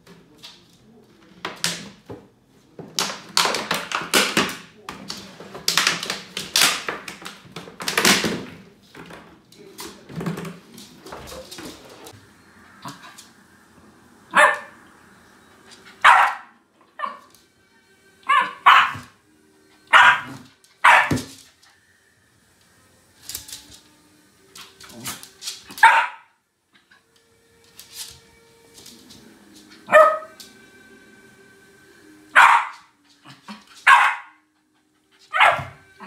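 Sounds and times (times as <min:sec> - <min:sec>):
dog barking: 0:14.3 - 0:14.8, 0:16.0 - 0:17.2, 0:18.3 - 0:19.2, 0:19.9 - 0:21.3, 0:25.8 - 0:26.3, 0:29.9 - 0:30.3, 0:32.4 - 0:32.9, 0:33.8 - 0:34.5, 0:35.3 - 0:35.8.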